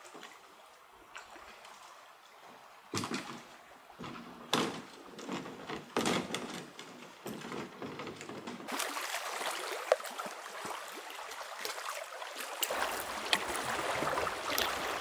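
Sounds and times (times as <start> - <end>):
canoe hull knocking and scraping: 2.9 - 8.7.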